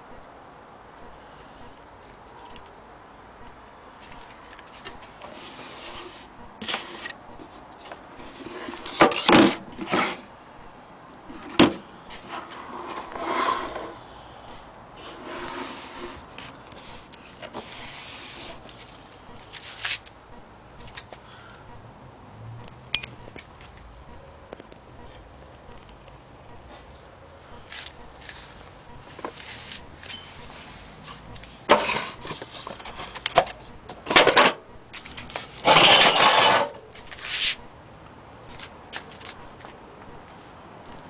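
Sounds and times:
wooden drawer rubbing and sliding: 0:12.2 - 0:14.0, 0:15.0 - 0:16.4.

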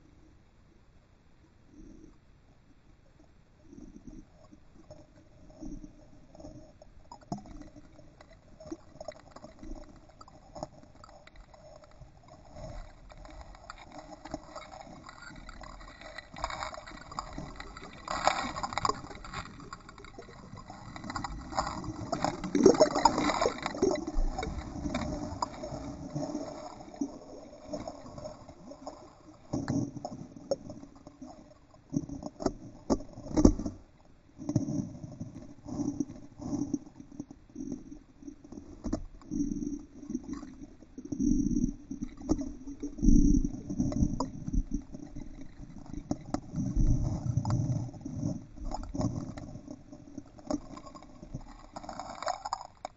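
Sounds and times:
muffled underwater paddling: 0:01.8 - 0:52.9
bubbles: 0:04.9 - 0:52.9
scattered clicks: 0:07.2 - 0:31.1.

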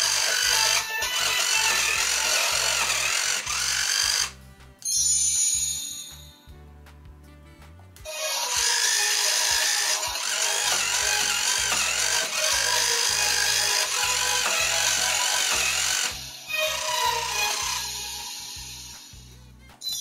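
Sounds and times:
song from toy speaker: 0:00.0 - 0:04.3, 0:08.1 - 0:19.3
toy electric motor whirring: 0:00.0 - 0:04.4, 0:08.1 - 0:19.3.

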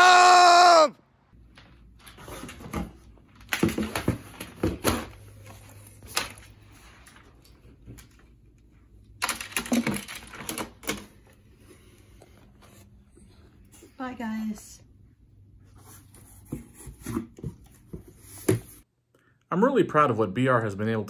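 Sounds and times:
keyboard plastic clacks and rattles: 0:09.2 - 0:11.2.

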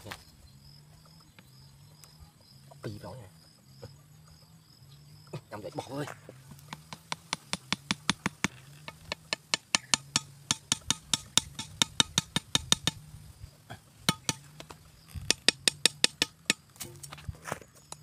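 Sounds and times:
knife tapping metal wire stakes: 0:06.5 - 0:13.0, 0:14.1 - 0:17.1.

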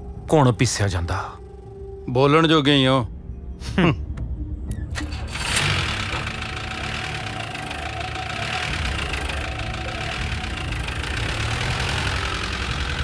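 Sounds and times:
jeep engine running: 0:05.0 - 0:13.0.

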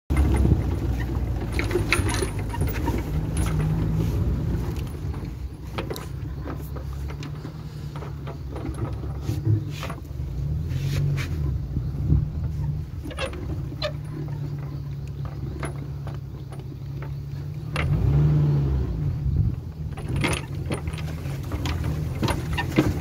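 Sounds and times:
metal body rattling: 0:00.1 - 0:18.0, 0:19.2 - 0:23.0
vehicle engine running: 0:00.1 - 0:23.0.

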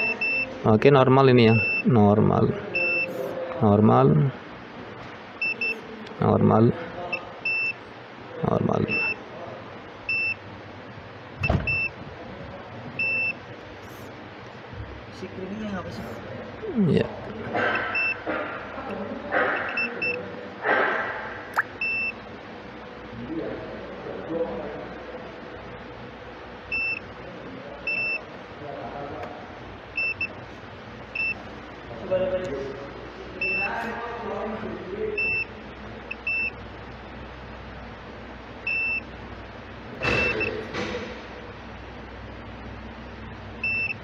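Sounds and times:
multimeter continuity beeps: 0:00.0 - 0:03.2, 0:05.4 - 0:05.8, 0:07.1 - 0:07.8, 0:08.6 - 0:09.2, 0:10.0 - 0:10.4, 0:11.4 - 0:12.0, 0:13.0 - 0:13.4, 0:17.7 - 0:18.3, 0:19.6 - 0:20.2, 0:21.6 - 0:22.2, 0:26.7 - 0:27.2, 0:27.8 - 0:28.3, 0:29.9 - 0:30.4, 0:31.1 - 0:31.5, 0:33.4 - 0:33.7, 0:35.1 - 0:36.6, 0:38.6 - 0:39.1, 0:40.0 - 0:40.6, 0:43.6 - 0:44.0.

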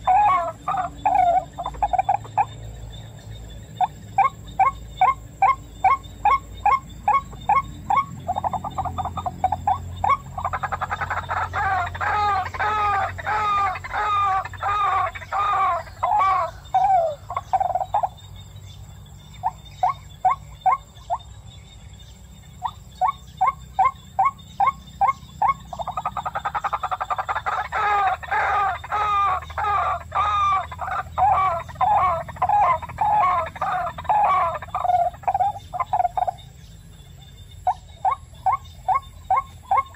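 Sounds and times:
rail bird calling: 0:00.0 - 0:39.9.

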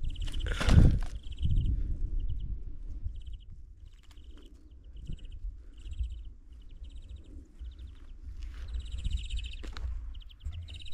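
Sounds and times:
low microphone rumble: 0:04.8 - 0:10.9.

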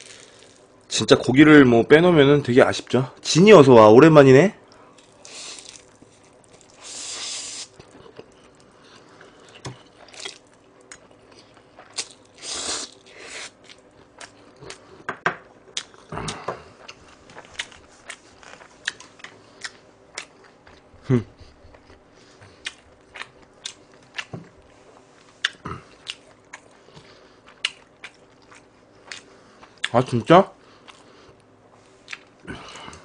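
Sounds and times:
noodle slurps: 0:06.6 - 0:07.8
wet chewing with mouth clicks: 0:15.7 - 0:30.0, 0:30.8 - 0:32.4.

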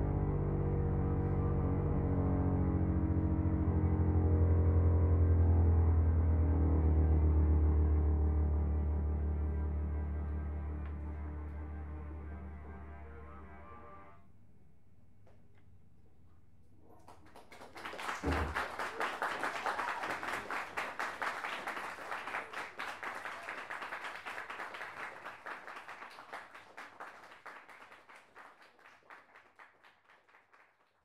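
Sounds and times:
audience applauding: 0:17.0 - 0:31.0.

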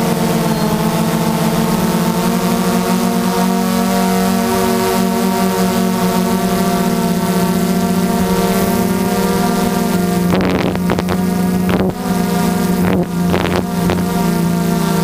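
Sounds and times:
drone motors humming: 0:00.0 - 0:15.0.

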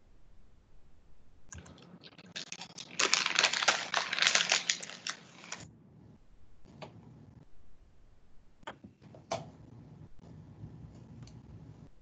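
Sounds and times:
rapid clicks and crackles: 0:01.6 - 0:05.6.

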